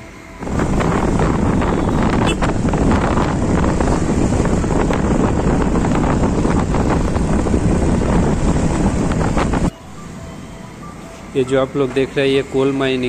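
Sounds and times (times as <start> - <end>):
road noise: 0.0 - 13.0
wind buffeting microphone: 0.4 - 9.7
motorcycle engine: 0.4 - 10.2.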